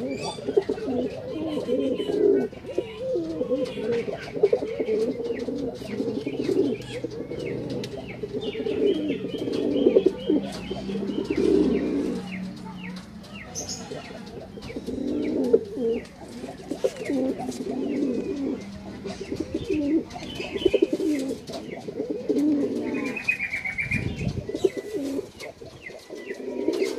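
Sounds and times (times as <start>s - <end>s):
pigeons cooing: 0.0s - 26.9s.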